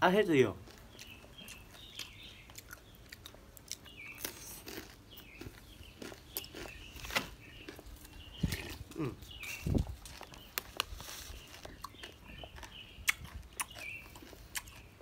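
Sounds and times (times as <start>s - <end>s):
close-up chewing: 0.6s - 15.0s
faint crunches: 0.7s - 15.0s
mouth clicks: 11.8s - 14.9s.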